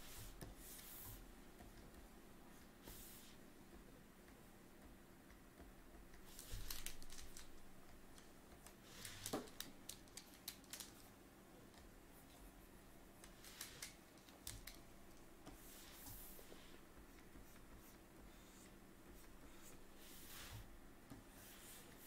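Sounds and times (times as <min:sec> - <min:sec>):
stylus tapping and scratching tablet: 0:11.7 - 0:22.0.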